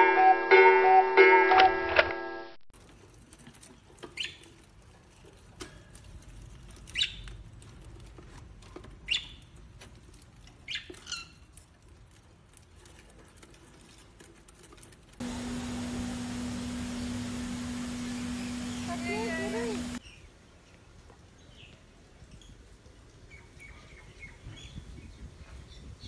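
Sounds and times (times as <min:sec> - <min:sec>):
bird shredding leaf: 0:02.8 - 0:20.0
bird chirping: 0:15.4 - 0:20.2.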